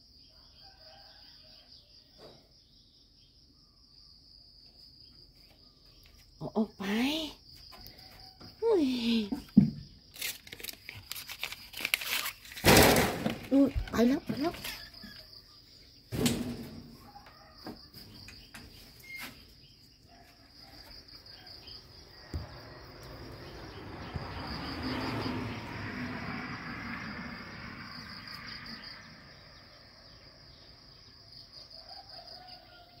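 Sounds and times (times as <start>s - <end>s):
insects chirping: 0.0s - 33.0s
thump: 9.6s - 9.9s, 12.6s - 13.5s, 16.1s - 17.0s, 22.2s - 22.7s.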